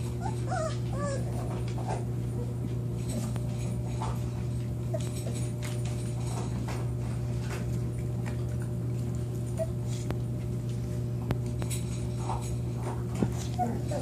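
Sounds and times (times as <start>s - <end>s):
steady low hum: 0.0s - 14.0s
puppy squeak: 0.2s - 1.3s.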